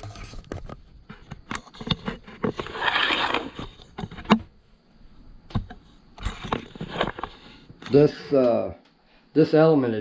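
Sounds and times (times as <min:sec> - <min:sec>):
rustling scrape: 0:00.0 - 0:00.8, 0:01.6 - 0:04.3, 0:06.2 - 0:07.6.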